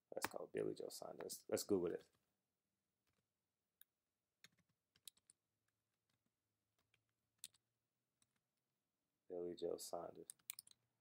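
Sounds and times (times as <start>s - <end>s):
computer keyboard typing: 4.4s - 5.4s, 10.3s - 10.8s.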